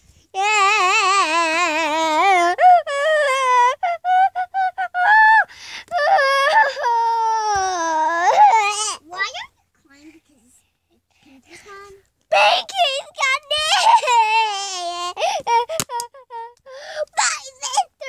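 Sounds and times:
child pretend crying: 0.4 - 9.1, 12.3 - 18.0.

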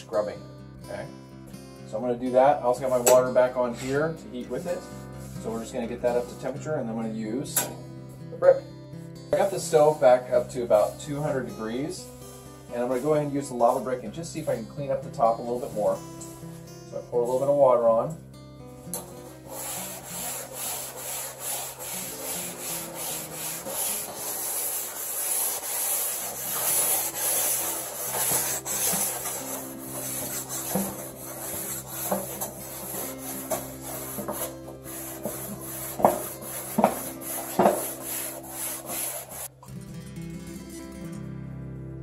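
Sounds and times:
grill brick scrubbing hot steel: 9.4 - 11.4, 18.8 - 39.5.

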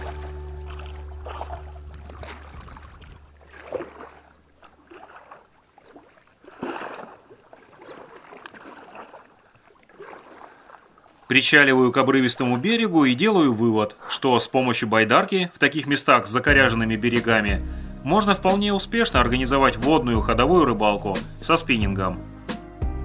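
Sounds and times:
background music: 0.0 - 2.5, 16.5 - 23.0
paddle splashing in water: 0.0 - 14.1, 15.7 - 22.0.

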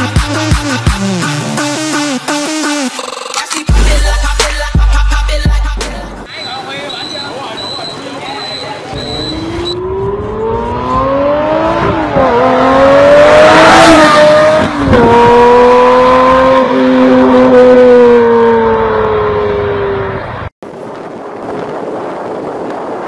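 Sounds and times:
car engine accelerating hard: 9.2 - 20.4.

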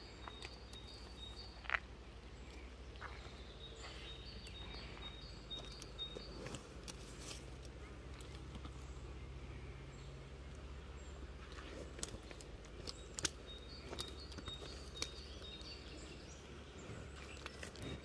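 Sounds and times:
faint high bird chirps: 0.0 - 7.0, 11.0 - 18.0
low steady rumble: 0.0 - 18.0.

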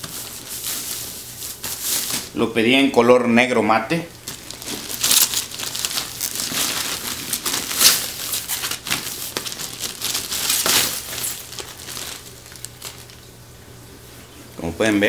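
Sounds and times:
plastic bag crinkling: 0.0 - 2.4, 4.1 - 13.4.

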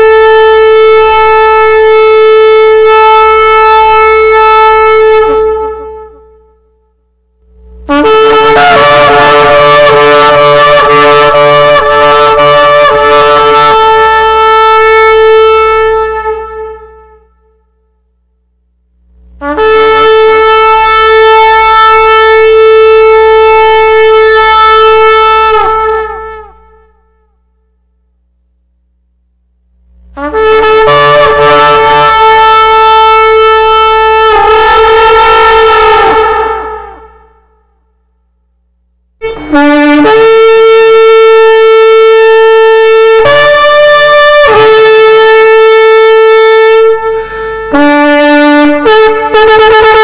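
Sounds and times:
shofar blasts: 0.0 - 17.9, 19.4 - 27.7, 30.2 - 38.1, 39.2 - 50.0.

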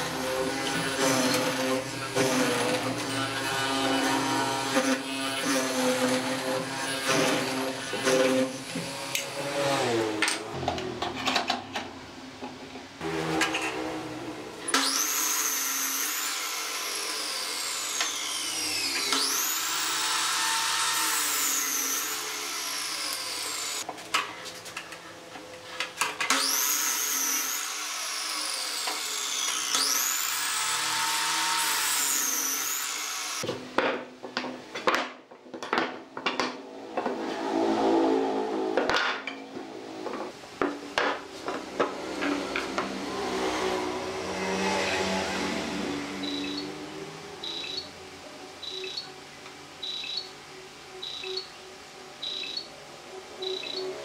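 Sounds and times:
boards clattering on a workbench: 33.5 - 37.2, 38.8 - 42.9
miter saw whine: 42.3 - 49.1.

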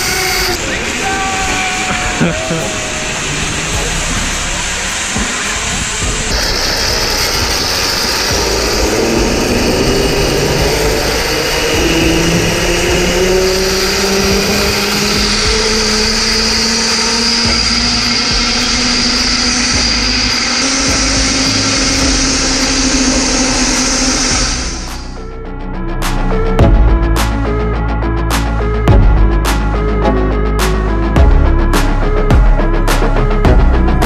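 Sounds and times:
wind buffeting microphone: 0.0 - 25.0
zipline pulleys whirring: 0.0 - 25.2.

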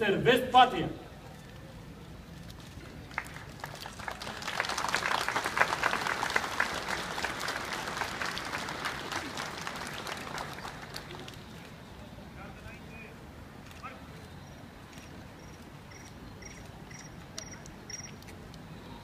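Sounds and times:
crowd applauding: 3.1 - 11.4.

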